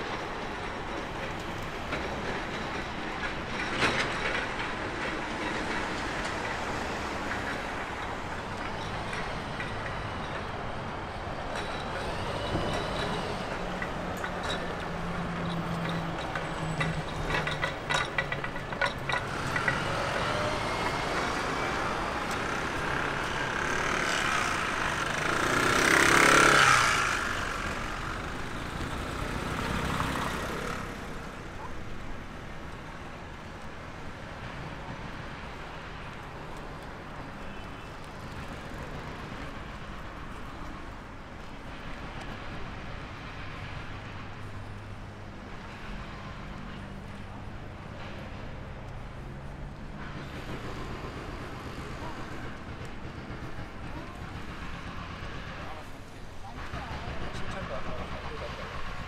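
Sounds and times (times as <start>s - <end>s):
street traffic: 0.0s - 59.0s
large vehicle passing: 11.8s - 31.6s.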